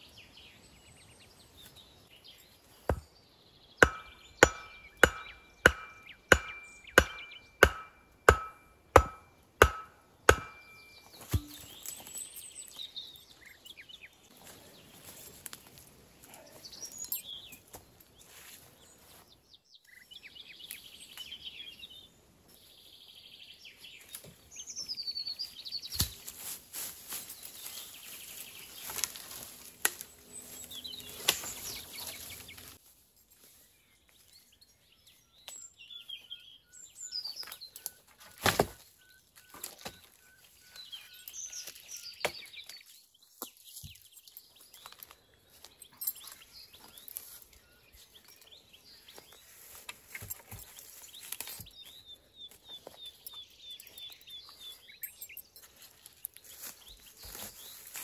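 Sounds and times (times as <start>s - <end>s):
birds calling: 2.2s - 14.2s, 27.4s - 32.8s
metal tool striking wood: 2.9s - 3.1s, 3.8s - 12.1s.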